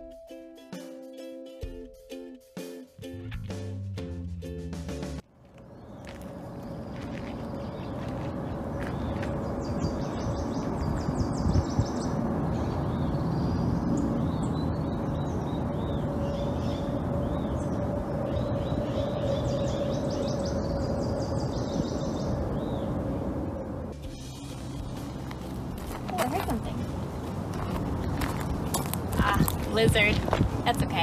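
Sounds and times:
small birds chirping and trilling: 0:05.7 - 0:23.2
low rumble: 0:06.0 - 0:31.0.

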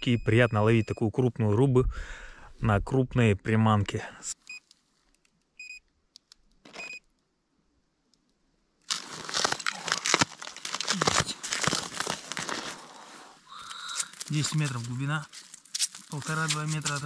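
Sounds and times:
short electronic beeps: 0:05.6 - 0:05.8, 0:06.8 - 0:07.0
crunching on crusty ice: 0:08.8 - 0:17.0.

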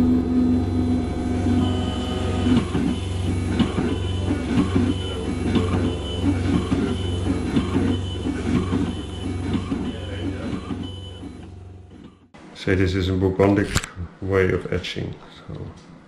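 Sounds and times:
high whine of milling burs: 0:00.0 - 0:11.9
milling machine motor hum: 0:00.0 - 0:12.3.

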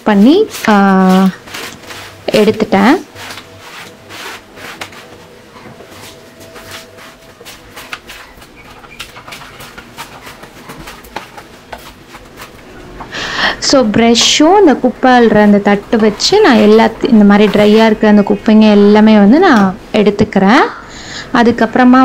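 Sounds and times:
brush scraping over countertop: 0:00.0 - 0:12.7, 0:15.3 - 0:19.0.

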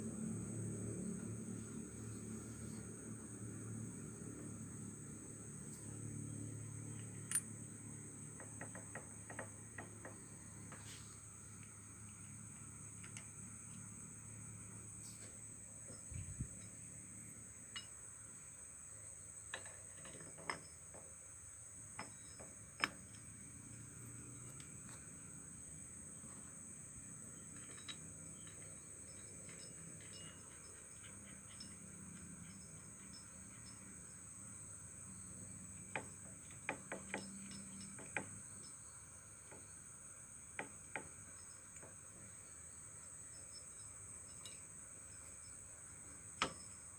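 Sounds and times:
crickets chirring: 0:00.0 - 0:46.9
metal parts clinking: 0:06.9 - 0:07.5, 0:27.4 - 0:31.8.

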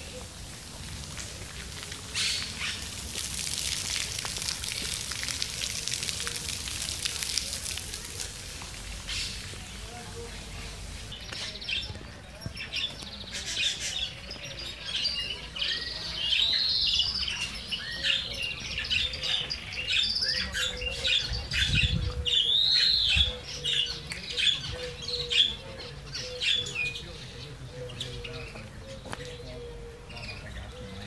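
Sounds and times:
birds chirping and squawking: 0:08.9 - 0:09.8, 0:10.8 - 0:31.0.

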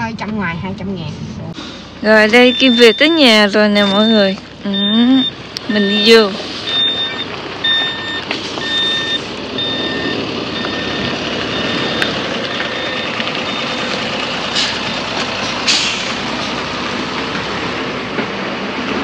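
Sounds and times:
truck engine running: 0:01.5 - 0:19.0
truck reversing alarm beeping: 0:01.8 - 0:17.2
short hisses: 0:15.7 - 0:16.2.

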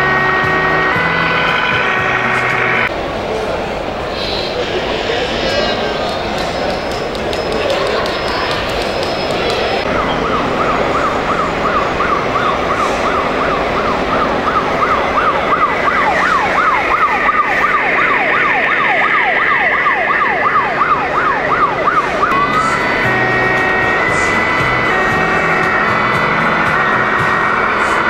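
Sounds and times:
electronic siren wailing: 0:00.0 - 0:02.9, 0:07.6 - 0:28.0.

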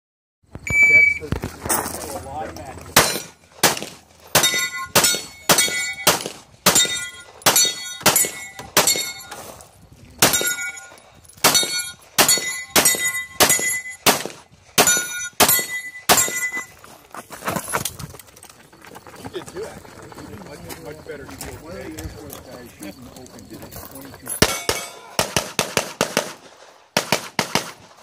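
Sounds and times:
pistol shots with metallic ring: 0:03.0 - 0:09.6, 0:10.2 - 0:16.8, 0:24.4 - 0:26.4.

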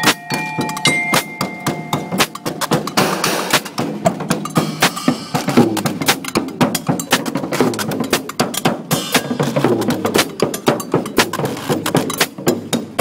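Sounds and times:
drums playing: 0:00.0 - 0:13.0.

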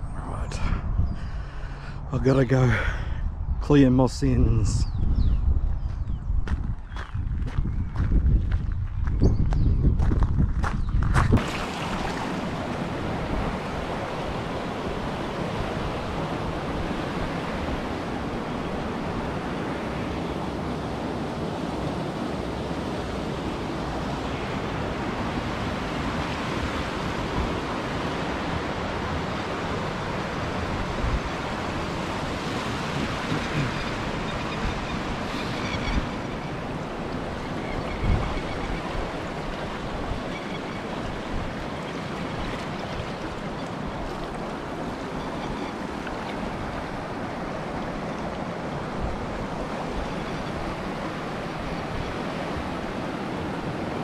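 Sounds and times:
wind buffeting microphone: 0:00.0 - 0:19.7, 0:24.7 - 0:53.8
river rushing: 0:11.4 - 0:54.0.

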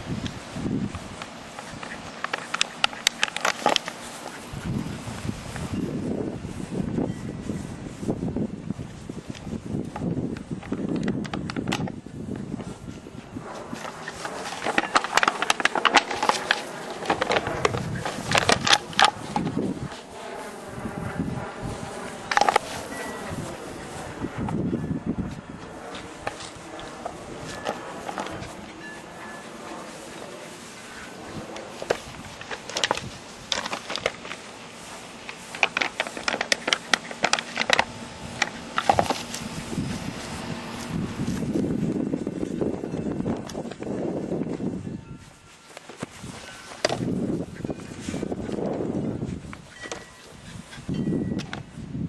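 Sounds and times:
plastic bottle crackling: 0:01.0 - 0:04.4, 0:13.7 - 0:20.2, 0:21.8 - 0:24.6, 0:29.5 - 0:41.5.

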